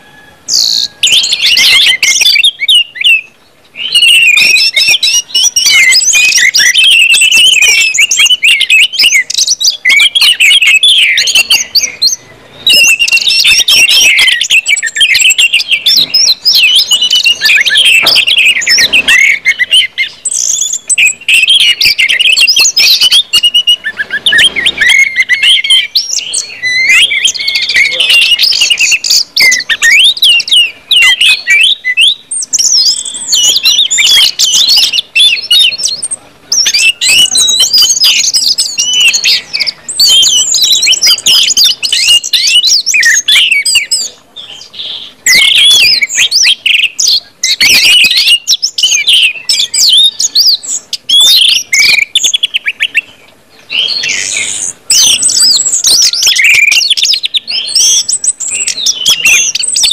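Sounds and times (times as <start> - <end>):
thrush singing: 0.0 - 44.0.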